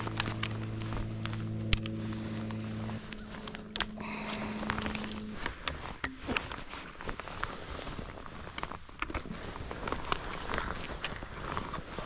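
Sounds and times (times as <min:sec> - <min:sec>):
low held music chord: 0:00.0 - 0:06.4
rustling: 0:00.0 - 0:12.0.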